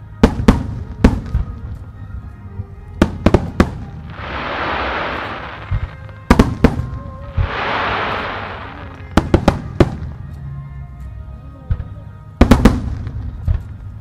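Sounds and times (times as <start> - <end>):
faint music: 0.0 - 14.0
rushing hiss of fireworks: 3.4 - 9.7
firework shells bursting: 4.1 - 6.6, 7.4 - 9.5.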